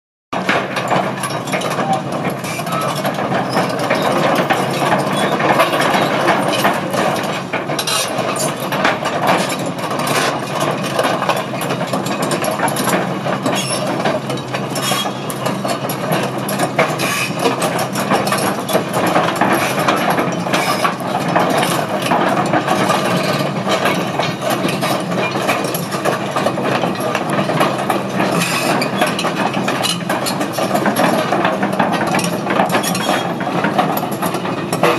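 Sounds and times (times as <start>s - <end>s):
crawler tracks clanking: 0.4s - 34.9s.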